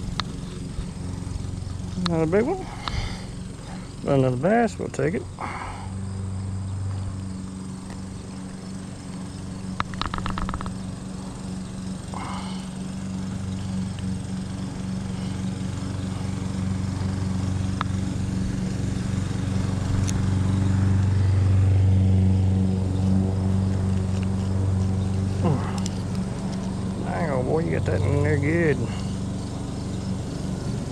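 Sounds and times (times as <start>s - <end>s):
lawn mower engine running: 0.0s - 30.9s.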